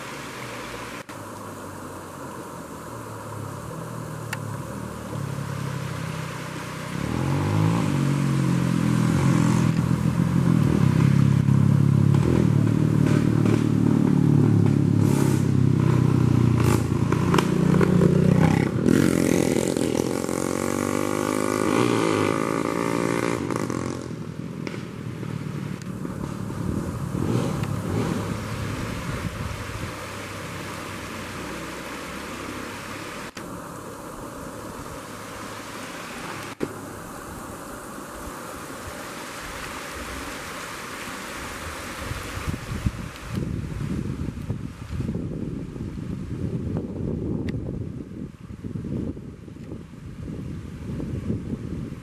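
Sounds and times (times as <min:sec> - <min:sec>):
motor vehicle engine: 0:00.0 - 0:37.1
stream running over rocks: 0:00.0 - 0:52.0.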